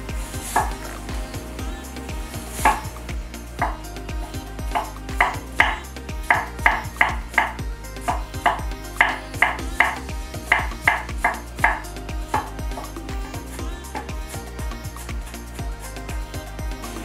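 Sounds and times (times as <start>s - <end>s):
background music with steady beat: 0.0s - 17.0s.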